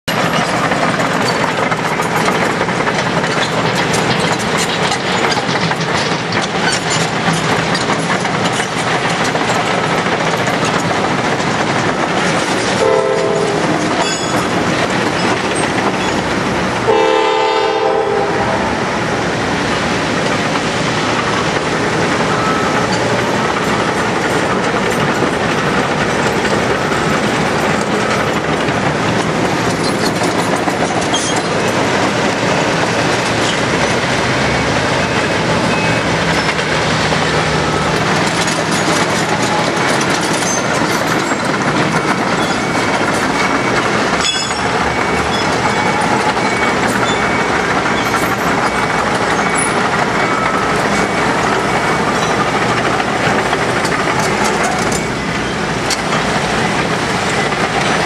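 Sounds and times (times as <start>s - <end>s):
freight train rumbling: 0.0s - 58.0s
locomotive air horn blasts: 12.8s - 13.7s, 16.9s - 18.9s.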